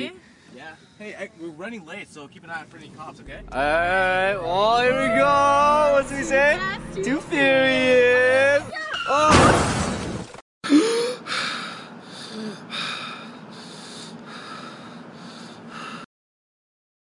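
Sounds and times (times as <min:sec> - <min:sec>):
loud crash-like burst: 0:09.3 - 0:10.3.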